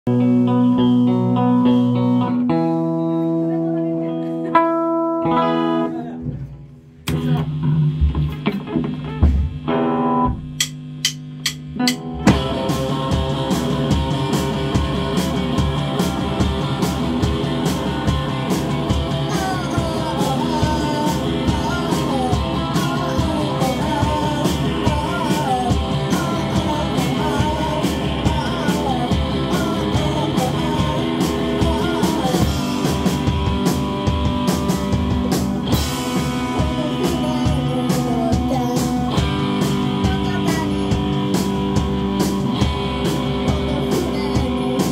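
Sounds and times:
bass guitar: 0.0s - 44.9s
electric guitar: 0.0s - 44.9s
drum kit: 4.6s - 44.9s
sharp drum hits: 6.3s - 12.7s
person singing: 11.8s - 33.2s, 35.1s - 41.7s, 43.1s - 44.9s.

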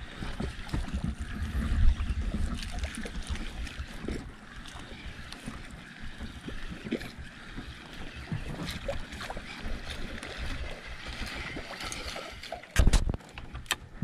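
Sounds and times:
water sloshing around boat: 0.0s - 14.0s
wind buffeting microphone: 0.8s - 4.2s.

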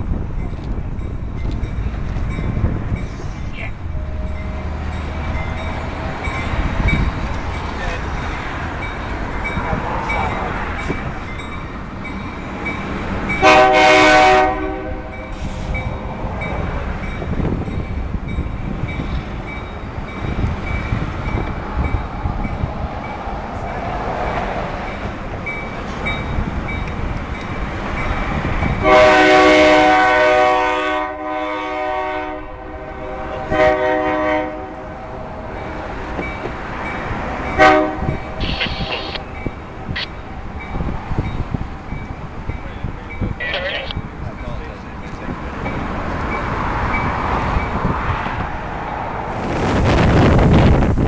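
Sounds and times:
train rumbling over switches: 0.0s - 13.6s, 35.6s - 48.5s
locomotive horn blasts: 13.4s - 15.3s, 28.8s - 34.8s, 37.6s - 39.1s.

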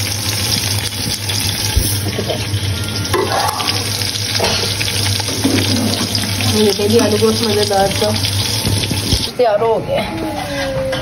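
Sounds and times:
onions sizzling in hot oil: 0.0s - 9.3s.

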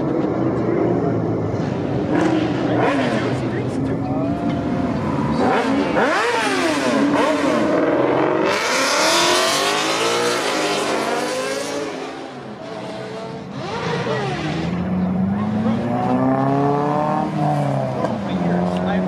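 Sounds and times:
car engine revving: 0.0s - 19.0s.

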